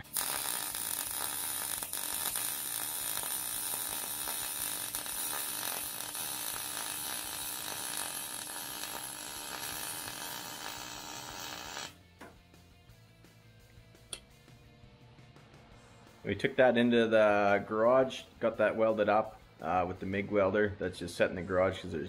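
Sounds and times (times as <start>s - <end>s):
welding arc crackling: 0.0s - 12.0s.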